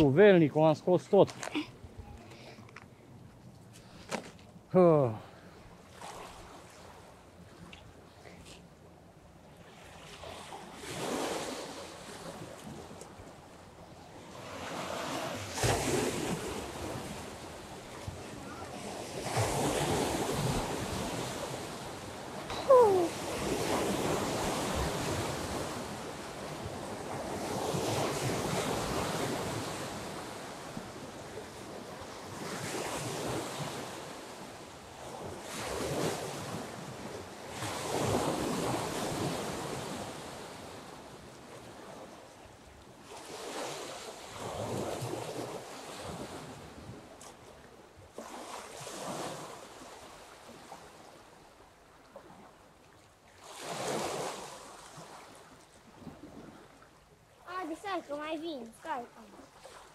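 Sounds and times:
waves washing onto river bank: 0:09.6 - 0:59.9.

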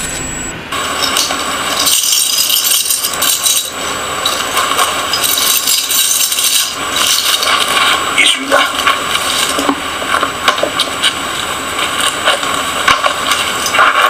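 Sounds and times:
metal jewellery jingling: 0:01.0 - 0:07.5.

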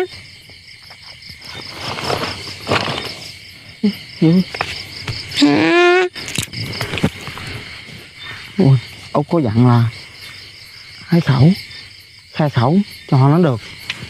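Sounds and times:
crickets chirping: 0:00.0 - 0:14.0
pitched vocal calls: 0:03.2 - 0:09.1
held vocal call: 0:05.3 - 0:06.2.

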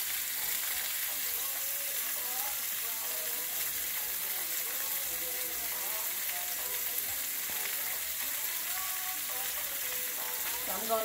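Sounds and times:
meat sizzling in hot oil: 0:00.0 - 0:11.0.

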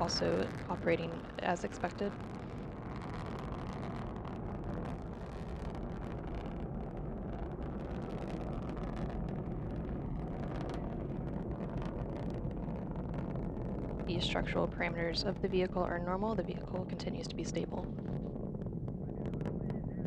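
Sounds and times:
rocket engines deep rumble: 0:00.0 - 0:20.0.

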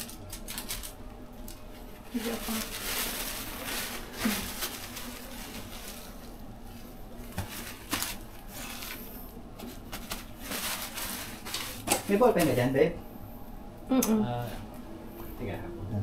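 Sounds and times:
paper towel rustling: 0:01.6 - 0:12.8.

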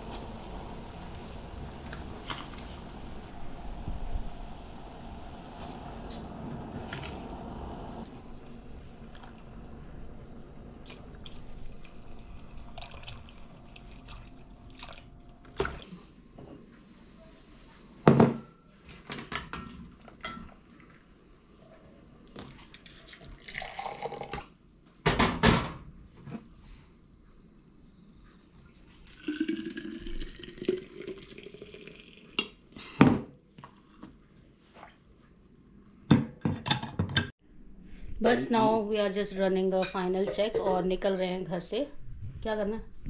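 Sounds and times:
milk pouring into saucepan: 0:10.8 - 0:15.1, 0:22.8 - 0:24.4, 0:28.9 - 0:32.4
tea poured into a glass: 0:10.8 - 0:15.1, 0:23.0 - 0:24.4, 0:29.0 - 0:32.4.

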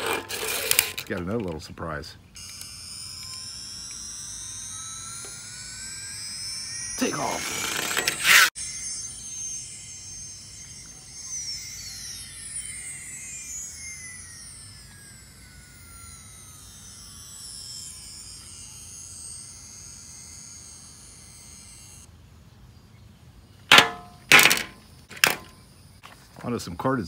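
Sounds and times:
high steady electronic tones: 0:02.4 - 0:22.1.

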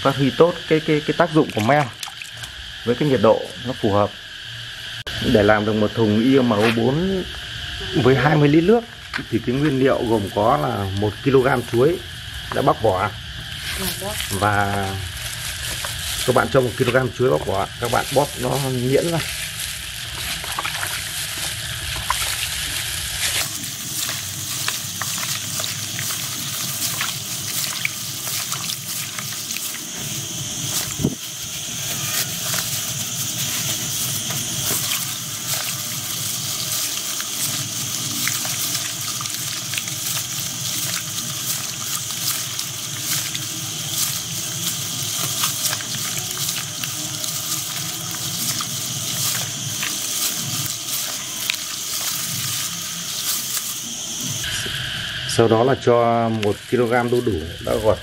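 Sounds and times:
hands squelching pulp in water: 0:01.4 - 0:02.6, 0:13.5 - 0:54.5.

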